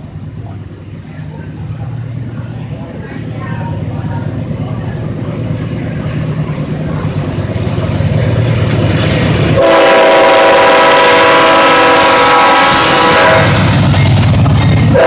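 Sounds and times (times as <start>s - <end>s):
locomotive engine rumble: 0.0s - 15.0s
locomotive air horn blast: 9.6s - 13.9s.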